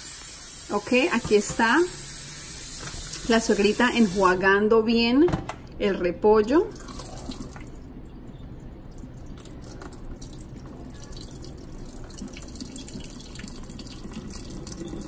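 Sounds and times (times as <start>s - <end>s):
water pouring into a steel sink: 6.7s - 7.8s, 9.0s - 15.0s.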